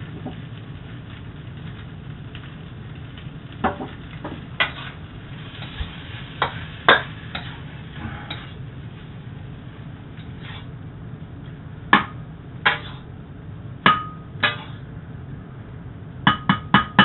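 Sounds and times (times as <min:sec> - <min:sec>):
steady low hum: 0:00.0 - 0:17.0
wok and spatula clanking: 0:03.6 - 0:08.6, 0:10.2 - 0:10.7, 0:11.9 - 0:13.1, 0:13.8 - 0:14.8, 0:16.3 - 0:17.0.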